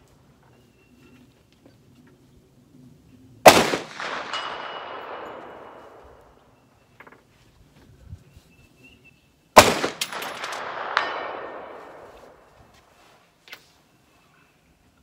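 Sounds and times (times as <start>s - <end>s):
rifle shots echoing: 3.4s - 6.5s, 9.6s - 12.6s
faint ring of steel target: 4.0s - 6.3s, 9.8s - 12.5s.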